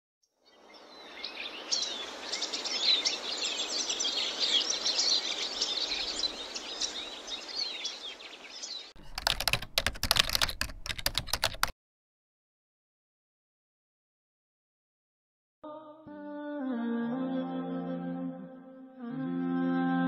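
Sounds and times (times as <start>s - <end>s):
steady outdoor hiss: 0.4s - 8.9s
bird chirps: 0.4s - 9.0s
keyboard typing clicks: 9.0s - 11.7s.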